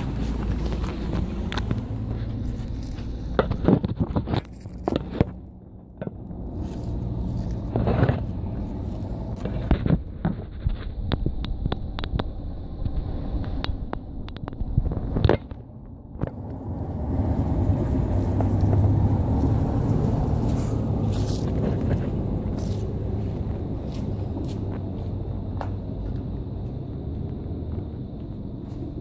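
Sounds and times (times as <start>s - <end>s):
low steady rumble: 0.0s - 29.0s
phone scraping on stone paving: 6.5s - 11.0s.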